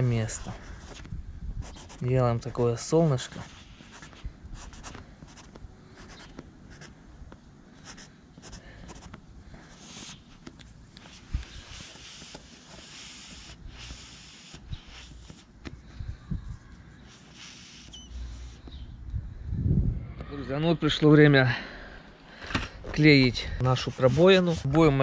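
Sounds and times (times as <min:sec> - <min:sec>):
marker pen scratching on vinyl: 0:00.3 - 0:02.1, 0:03.2 - 0:06.9, 0:07.8 - 0:18.8, 0:23.6 - 0:25.0.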